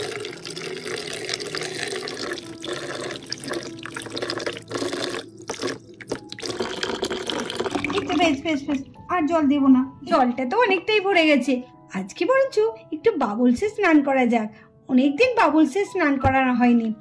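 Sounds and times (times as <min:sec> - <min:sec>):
water stream splashing into tub: 0:00.0 - 0:08.9.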